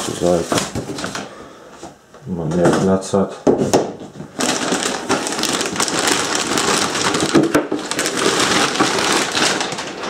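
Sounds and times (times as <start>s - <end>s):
plastic bag crinkling: 0.0s - 1.3s, 4.2s - 10.0s.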